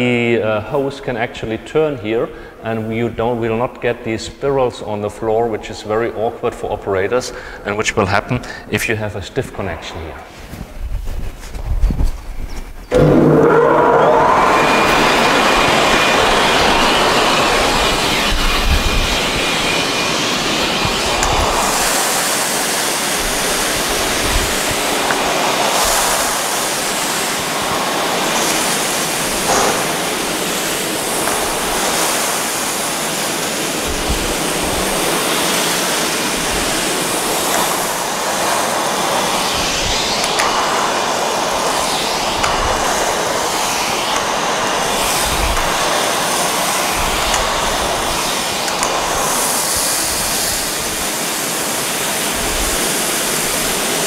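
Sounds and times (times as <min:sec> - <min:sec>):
industrial vacuum cleaner running: 0:12.9 - 0:54.0.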